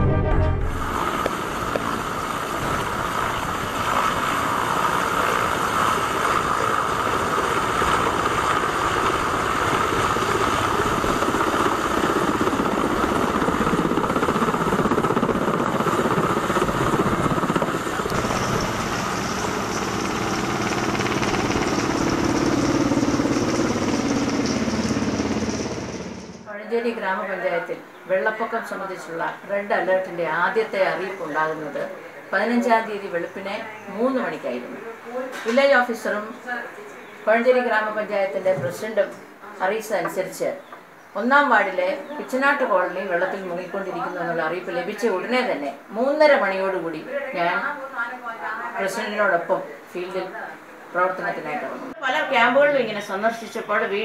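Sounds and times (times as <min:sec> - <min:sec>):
helicopter turbine whine and rotor: 0:00.6 - 0:26.5.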